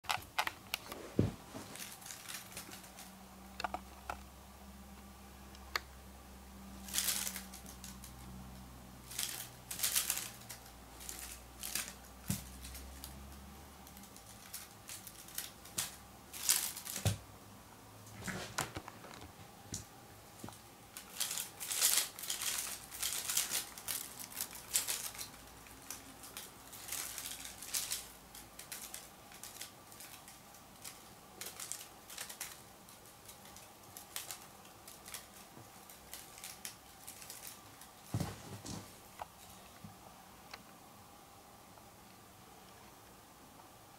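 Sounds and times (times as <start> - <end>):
bed sheets rustling: 0.8 - 2.8, 37.0 - 39.1.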